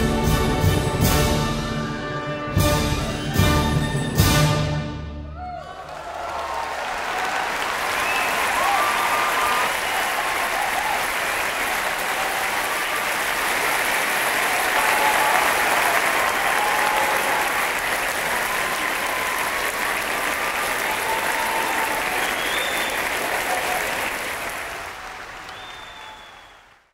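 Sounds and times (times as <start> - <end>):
audience applauding: 5.4 - 26.9.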